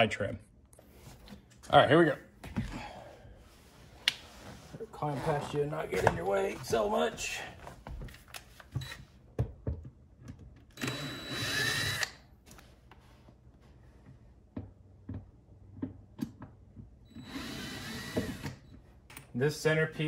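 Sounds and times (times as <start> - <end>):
cordless drill running: 10.8 - 12.2, 17.1 - 18.7.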